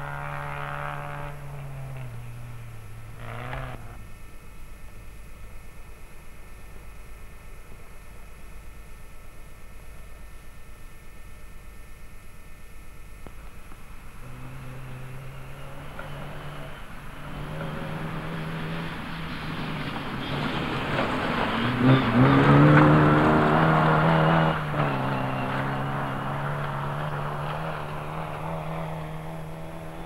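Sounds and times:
rally car engine revving past: 0.0s - 4.1s, 14.0s - 30.0s.

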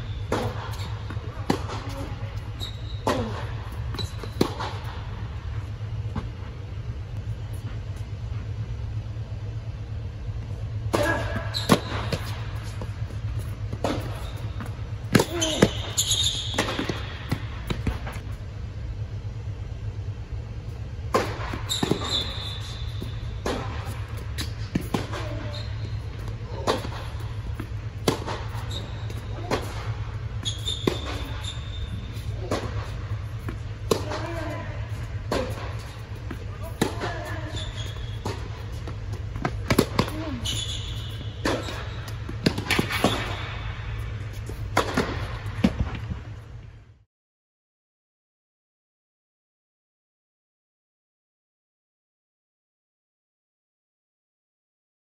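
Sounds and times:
blower fans humming: 0.0s - 46.9s
tennis ball hits and bounces: 0.3s - 2.1s, 3.0s - 5.0s, 10.9s - 18.3s, 21.1s - 25.6s, 26.2s - 31.4s, 32.2s - 34.6s, 35.3s - 43.6s, 44.4s - 46.1s.

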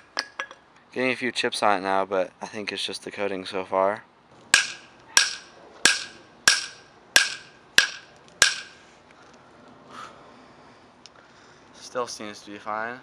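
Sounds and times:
crank arm knocking on concrete: 4.5s - 8.8s.

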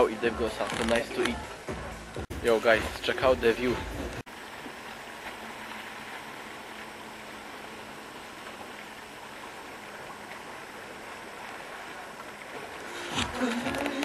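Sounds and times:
sea water washing along shore: 4.3s - 14.0s.

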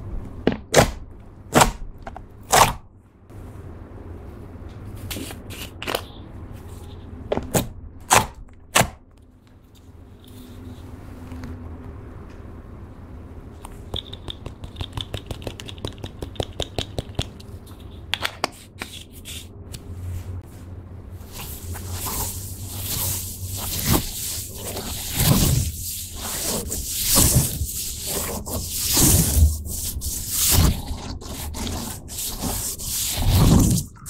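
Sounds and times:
slime squelching: 21.2s - 34.0s.

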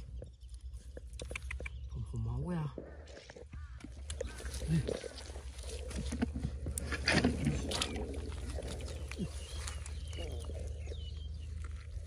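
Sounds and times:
shallow water sloshing and splashing: 4.2s - 12.0s.

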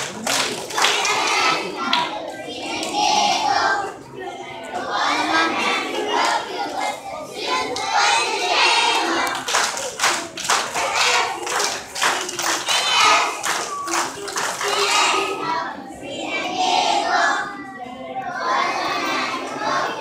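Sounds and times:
hand claps: 0.0s - 2.1s, 9.2s - 14.9s
children singing and shouting: 0.0s - 20.0s.

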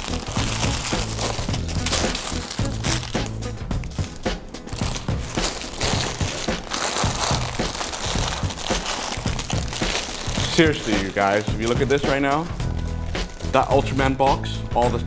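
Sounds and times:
plastic bags crinkling: 0.0s - 14.2s.

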